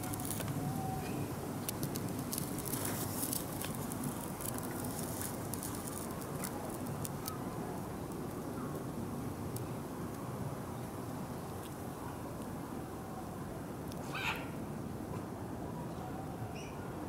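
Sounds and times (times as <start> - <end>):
guinea pigs crunching leaves: 0.0 - 10.2.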